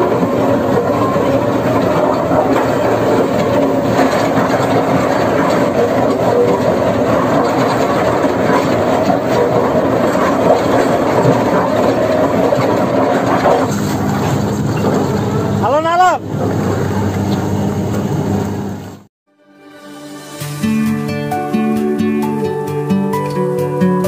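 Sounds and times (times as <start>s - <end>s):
rattling and clatter: 0.0s - 15.6s
drilling rig machine noise: 0.0s - 19.1s.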